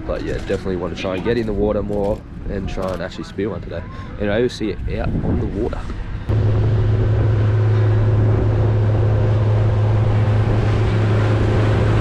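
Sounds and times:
motorboat engine humming: 0.0 - 2.7, 5.9 - 12.0
wind noise: 0.0 - 12.0
water rushing: 6.3 - 12.0.

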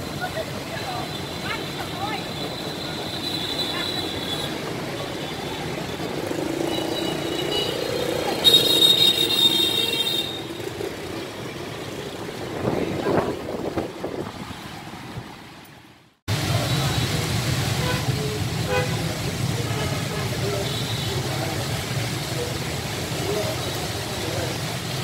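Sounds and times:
motor scooters passing: 0.0 - 15.2
cars passing: 0.0 - 25.0.

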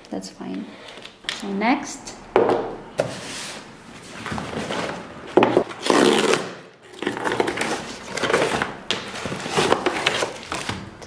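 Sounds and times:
cardboard carton rustling: 3.0 - 10.8.

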